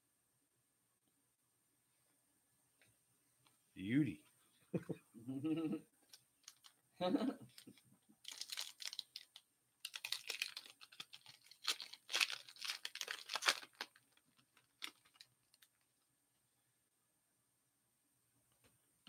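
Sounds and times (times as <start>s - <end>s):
foil wrapper crinkling: 6.4s - 6.8s, 7.5s - 15.9s.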